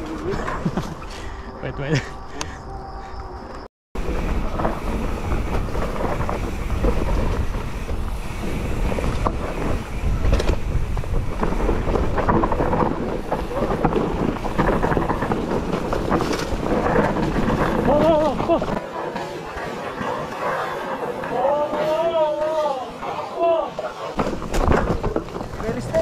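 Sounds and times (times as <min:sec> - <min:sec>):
tyres rolling on dirt: 0:00.0 - 0:02.1, 0:04.0 - 0:26.0
bike rattling and knocking: 0:04.0 - 0:19.5, 0:24.1 - 0:26.0
wind buffeting microphone: 0:04.0 - 0:26.0.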